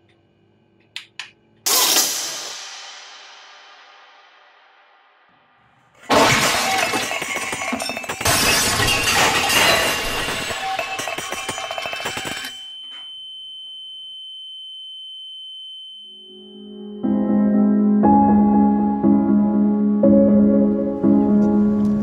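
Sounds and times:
glass shattering: 1.7 - 2.5, 6.0 - 13.0
crashing and breaking: 6.0 - 12.5
high-pitched ringing tone: 10.4 - 17.2.

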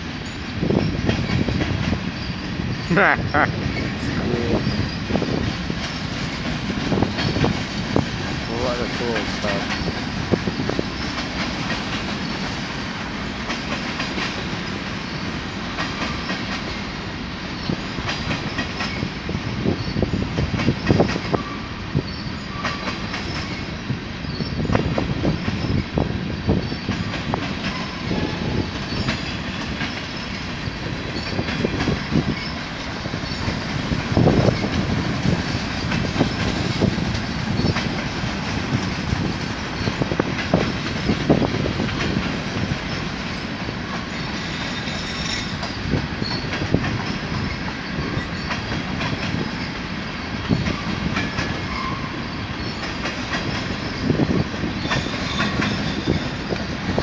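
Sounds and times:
freight train rumbling past: 0.0 - 57.0
train wheels clacking over joints: 0.2 - 57.0.

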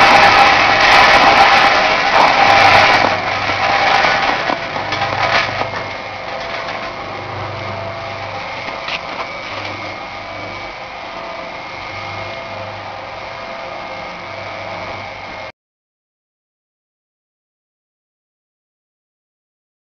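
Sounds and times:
high machine whine: 0.0 - 15.5
machine motor hum: 0.0 - 15.5.

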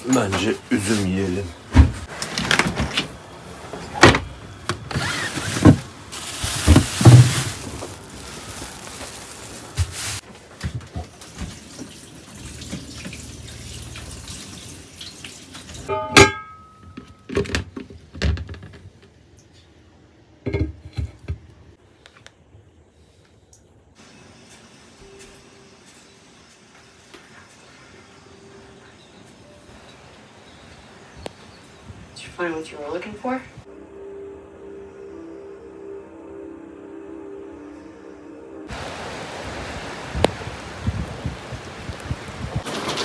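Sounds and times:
tap water running into sink: 11.0 - 15.9
knocks and clatter of handling: 16.2 - 19.2.

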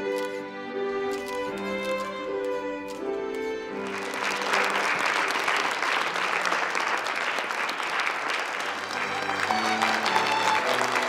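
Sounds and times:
background music: 0.0 - 5.2, 8.7 - 11.0
crowd applauding: 3.8 - 11.0.

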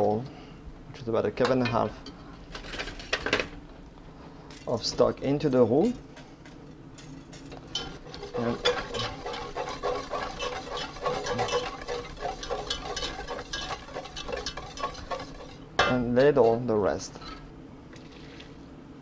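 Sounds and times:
whisk scraping and clinking in pot: 4.9 - 17.5.

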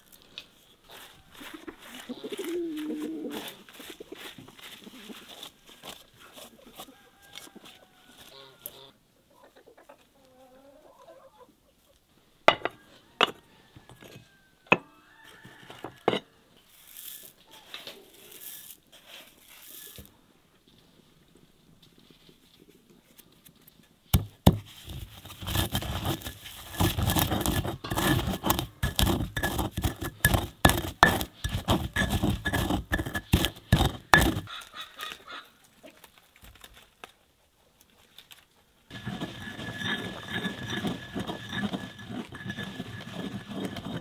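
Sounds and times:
pestle pounding in a mortar: 25.5 - 34.5.

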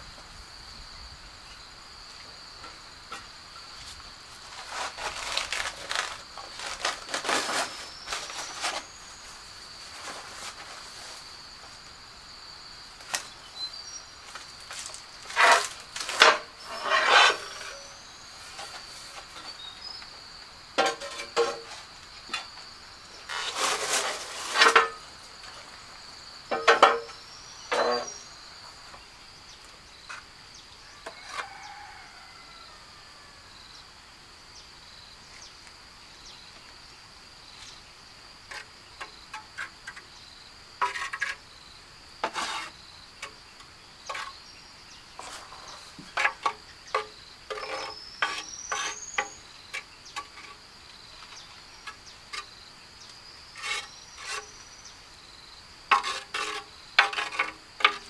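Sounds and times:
high insect trill: 0.0 - 58.0
knocks and scrapes: 2.6 - 11.8, 14.3 - 20.1, 20.8 - 25.8, 26.5 - 28.3, 31.0 - 32.0, 38.5 - 40.2, 40.8 - 41.4, 42.2 - 43.4, 44.0 - 44.4, 45.2 - 52.6, 53.5 - 54.7, 55.9 - 58.0.

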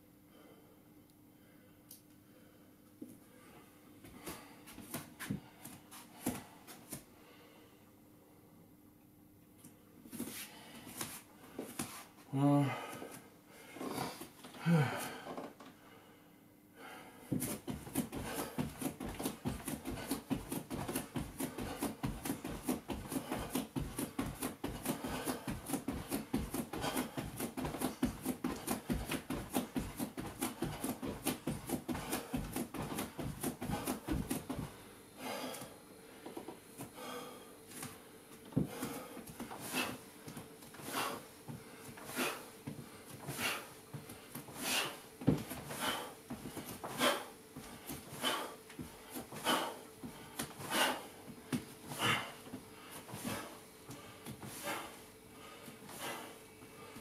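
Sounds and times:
heavy breathing: 1.4 - 7.9, 10.2 - 57.0
rhythmic exercise thumps: 17.3 - 35.6.

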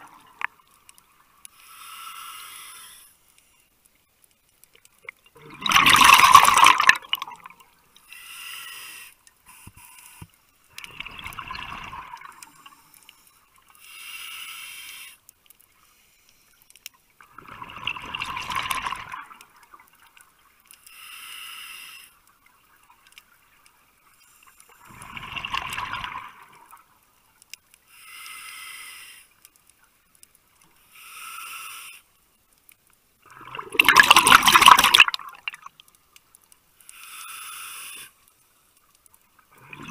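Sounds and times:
regulator inhalation hiss: 1.5 - 3.6, 8.0 - 10.2, 13.7 - 15.2, 20.8 - 22.2, 27.9 - 29.4, 30.8 - 32.1, 36.9 - 38.2
exhaled bubbles rushing: 5.4 - 7.5, 10.8 - 12.4, 17.4 - 19.3, 25.0 - 26.5, 33.3 - 35.7.

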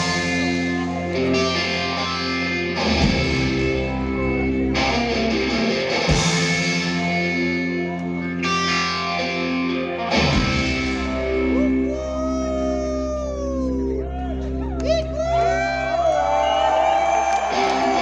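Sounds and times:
drums: 0.0 - 12.9
bass guitar: 0.0 - 18.0
electric guitar chords: 0.0 - 18.0.

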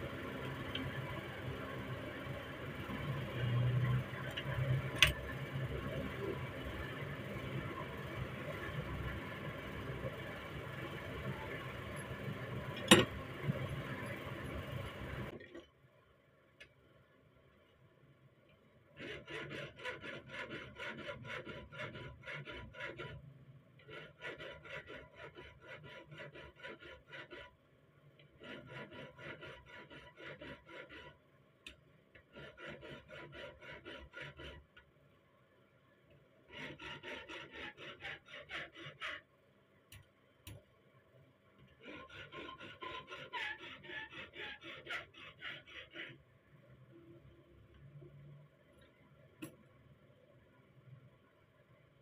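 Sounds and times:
hand file rasping on steel: 19.0 - 23.2, 23.8 - 27.6, 28.2 - 31.2, 32.2 - 34.8, 36.5 - 39.3, 41.7 - 46.2.

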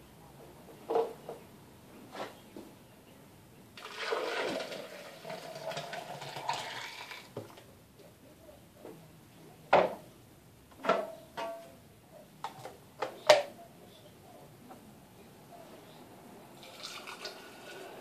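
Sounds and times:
smoothie pouring into glass: 3.8 - 7.4, 16.6 - 18.0.

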